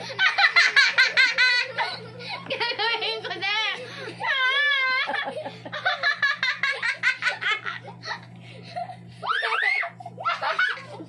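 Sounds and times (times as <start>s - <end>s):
group laughing: 0.0s - 11.0s
high squealing laugh: 4.2s - 11.0s.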